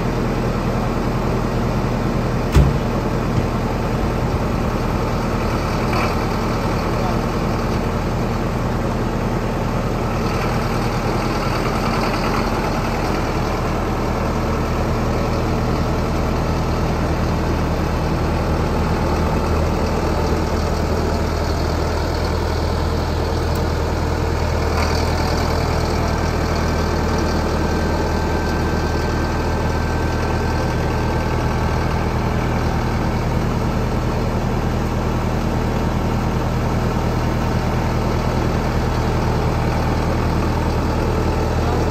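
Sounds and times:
tractor diesel engine idling: 0.0s - 41.9s.

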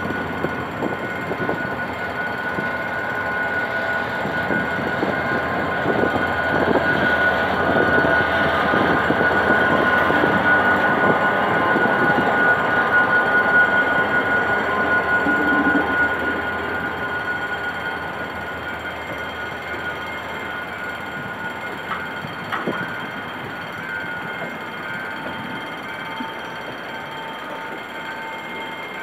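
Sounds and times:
diesel locomotive engine working hard: 0.0s - 29.0s
steady high-pitched tone: 0.0s - 29.0s
train wheels knocking over rails: 18.2s - 29.0s.

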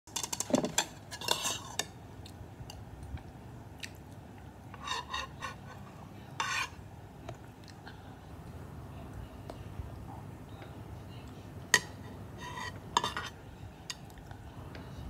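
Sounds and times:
metal spoon clinking against bowl: 11.7s - 14.0s.

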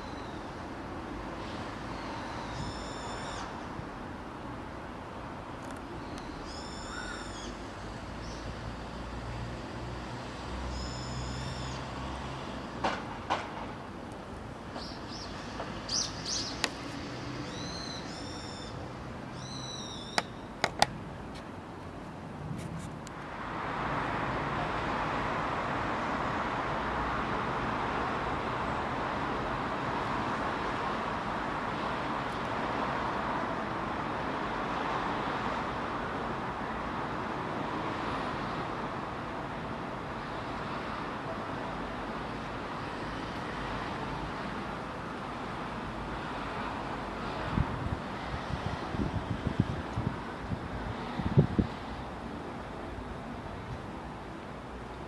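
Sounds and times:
high chirping bird calls: 19.4s - 20.5s.

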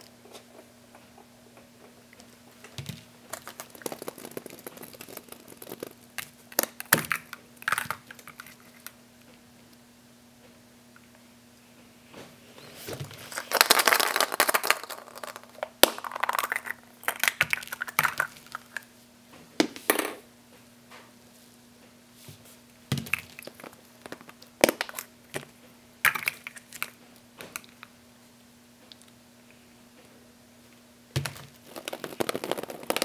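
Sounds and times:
plastic toy eggs clicking: 3.4s - 9.0s, 13.4s - 18.8s, 31.6s - 33.0s.

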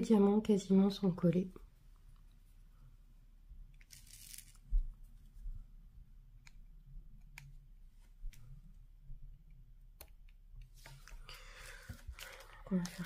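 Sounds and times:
tweezers clicking on plastic beads: 6.3s - 7.7s.

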